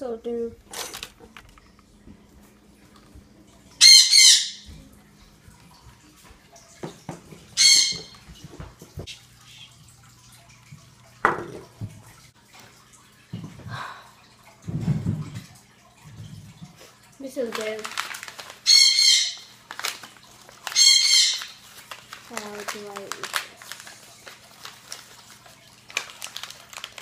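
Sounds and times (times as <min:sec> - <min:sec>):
low steady hum: 0:00.0 - 0:18.6.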